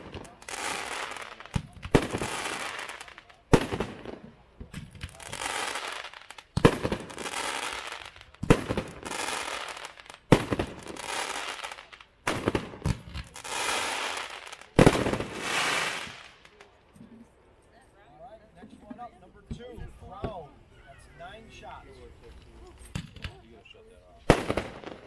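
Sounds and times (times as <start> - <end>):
firework bangs: 0.0 - 16.6, 24.3 - 25.0
firework crackling: 0.0 - 16.8, 24.3 - 25.0.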